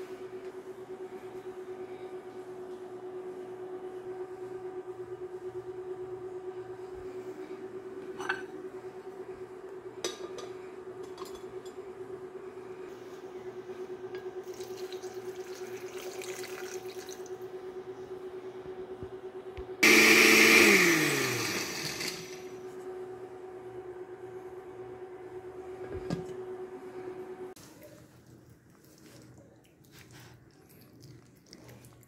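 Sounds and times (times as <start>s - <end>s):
water pouring into a blender jar: 14.4s - 17.3s
blender motor running: 19.8s - 22.6s.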